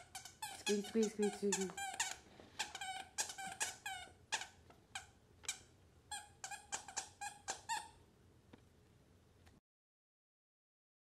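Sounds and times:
dog toy squeaking: 0.0 - 8.0.

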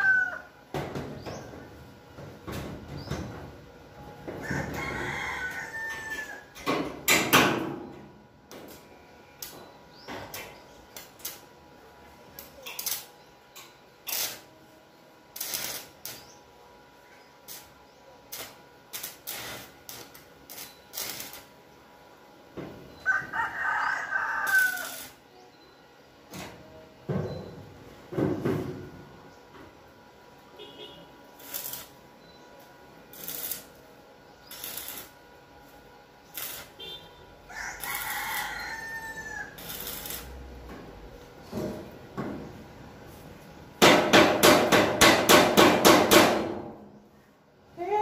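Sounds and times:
rooster crowing: 0.0 - 0.6, 4.3 - 6.6, 22.9 - 25.2, 37.5 - 40.2.

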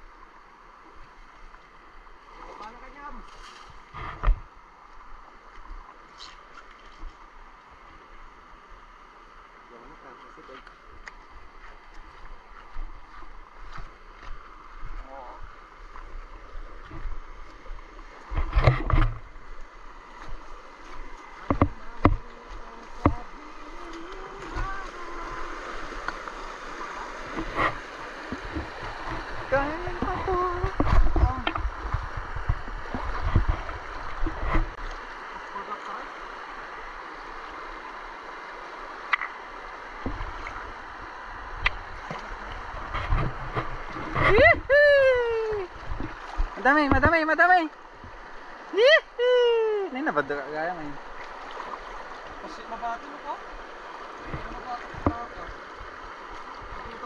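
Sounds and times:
river water running over rocks: 0.0 - 57.0
splashing of wading: 9.1 - 57.0
man whooping: 44.3 - 45.7, 48.8 - 49.9.

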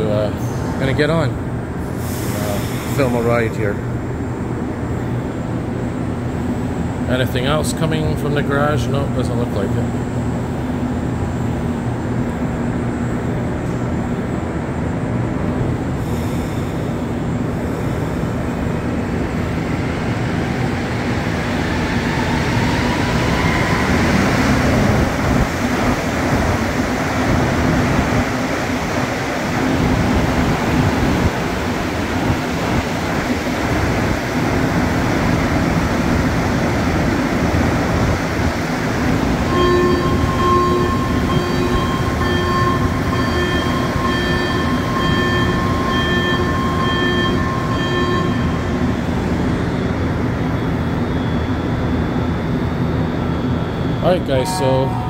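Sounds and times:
metro train running: 0.0 - 55.0
repeated beeping tone: 54.1 - 55.0.

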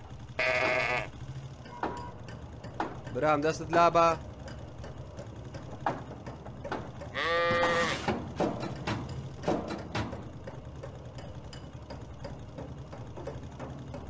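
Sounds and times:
ram bleating: 0.3 - 1.2, 7.1 - 8.1
small knocks: 1.6 - 14.0.

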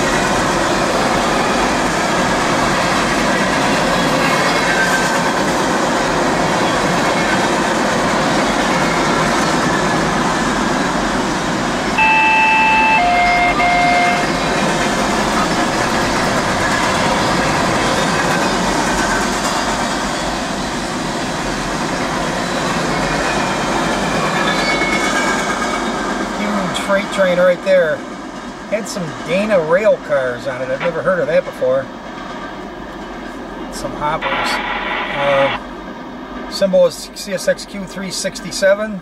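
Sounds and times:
freight train cars rolling on rails: 0.0 - 39.0
train horn: 12.0 - 14.5.

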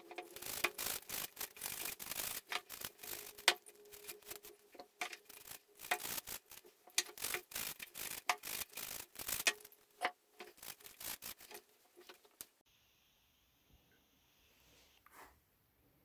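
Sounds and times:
brush scrubbing metal gears: 0.0 - 12.6.

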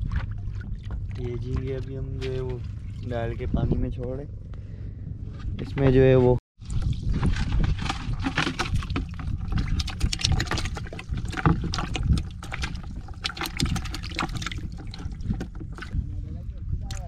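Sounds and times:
water splashing in a plastic bucket: 0.0 - 3.4, 6.6 - 16.0
low rumble: 0.0 - 17.0.

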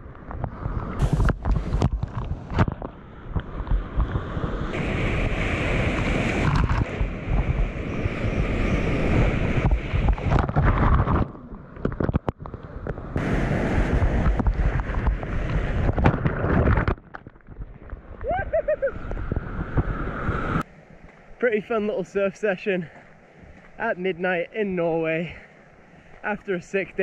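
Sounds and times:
whitewater rushing and splashing: 3.3 - 11.9, 13.2 - 17.0.

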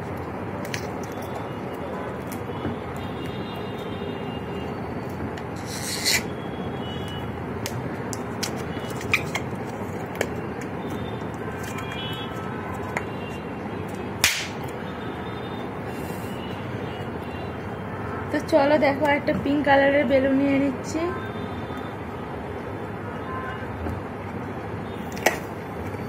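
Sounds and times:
balloon rubbed between fingers: 5.6 - 6.3
small sharp rubber pops: 14.2 - 14.6.

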